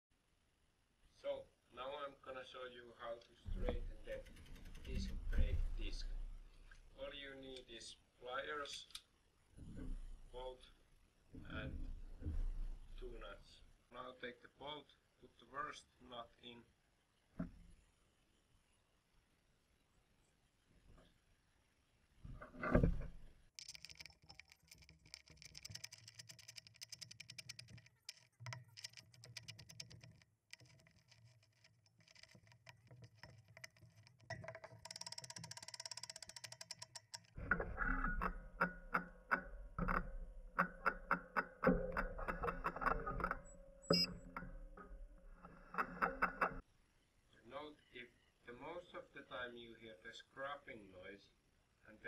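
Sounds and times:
metal bolt and nuts handling: 23.6 - 46.6.

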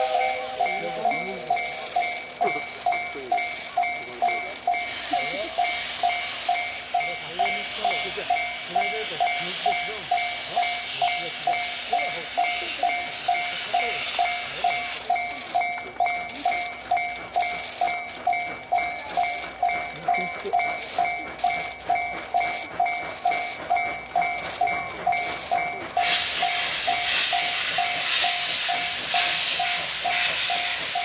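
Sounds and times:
level crossing warning bell: 0.0 - 31.0
steam locomotive hissing: 0.0 - 31.0.

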